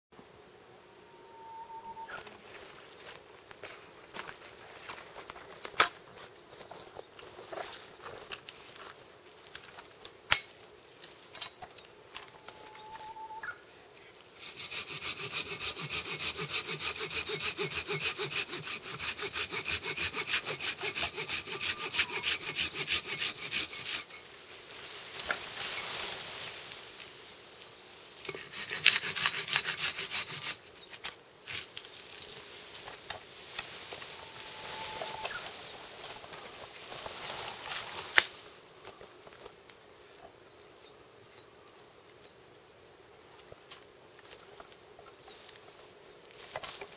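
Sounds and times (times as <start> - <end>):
pull saw cutting wood: 14.4 - 24.3, 28.2 - 30.6.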